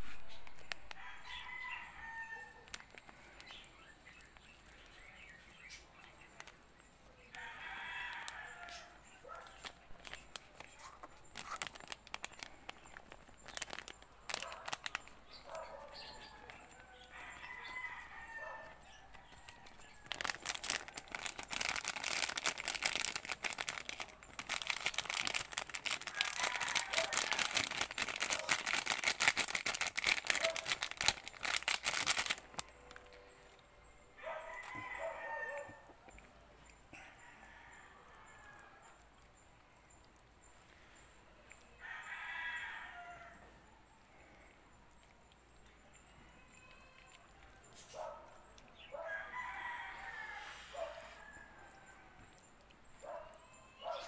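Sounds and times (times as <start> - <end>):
rooster crowing: 0.9 - 2.7, 7.4 - 9.0, 16.2 - 20.3, 26.1 - 27.6, 34.2 - 35.8, 41.8 - 43.5, 49.0 - 52.2.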